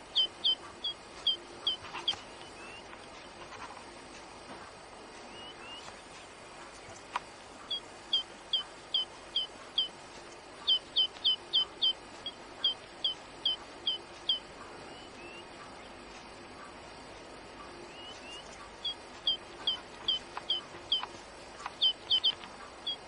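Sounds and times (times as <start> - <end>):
songbird singing: 0.0 - 3.4, 5.2 - 23.0
bird call notes: 17.9 - 23.0.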